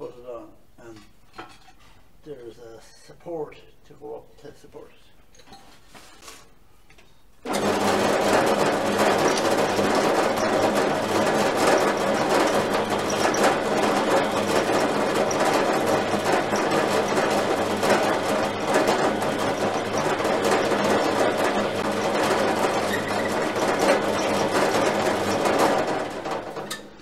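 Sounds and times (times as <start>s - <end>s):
drill press drilling steel: 7.5s - 27.0s.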